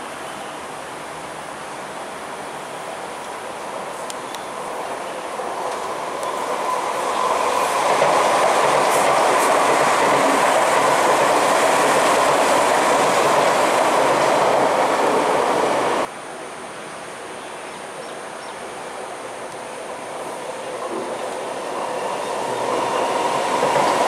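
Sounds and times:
distant train: 0.0 - 16.1, 18.6 - 24.0
train wheels rumbling on rails: 2.9 - 16.1, 19.5 - 24.0.

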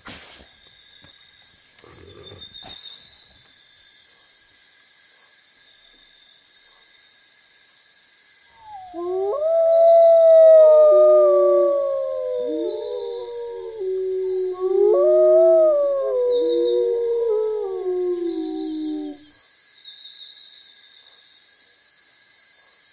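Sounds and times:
faint high-pitched hum: 8.6 - 19.3
wolves howling in chorus: 8.6 - 19.3.

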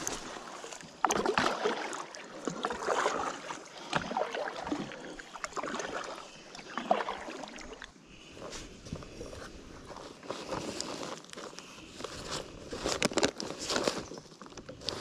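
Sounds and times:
water running off paddle: 0.0 - 7.9
paddle splashing in water: 0.0 - 8.2.

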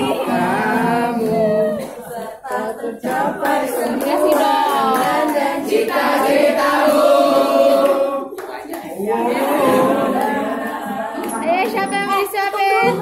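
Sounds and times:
group singing a birthday tune: 0.0 - 13.0
hand clapping: 1.2 - 9.0.

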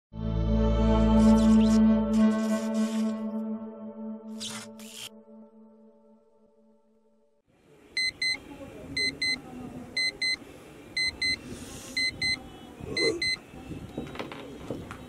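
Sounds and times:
electronic alarm beeping: 8.0 - 8.4, 9.0 - 9.4, 10.0 - 10.4, 11.0 - 11.4, 12.0 - 12.4, 13.0 - 13.4.

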